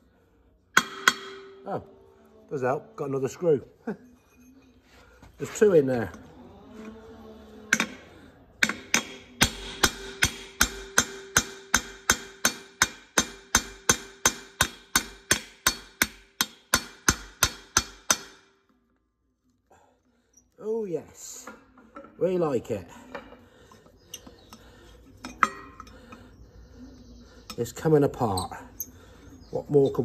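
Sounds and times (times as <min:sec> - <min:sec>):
hammer striking chisel: 0:00.8 - 0:01.7, 0:07.7 - 0:18.5.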